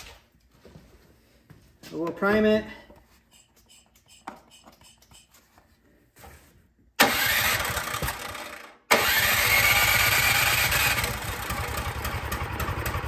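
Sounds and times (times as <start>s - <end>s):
snowblower engine running: 7.0s - 13.0s.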